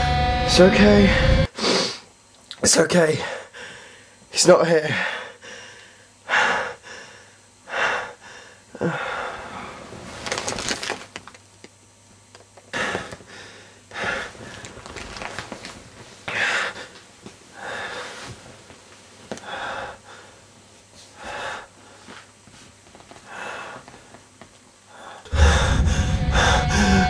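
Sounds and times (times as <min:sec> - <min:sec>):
person breathing heavily: 0:01.0 - 0:02.1, 0:03.2 - 0:04.2, 0:04.9 - 0:09.8, 0:12.7 - 0:14.7, 0:16.3 - 0:18.3, 0:19.4 - 0:20.4, 0:21.1 - 0:22.2, 0:23.3 - 0:24.0, 0:24.9 - 0:27.0.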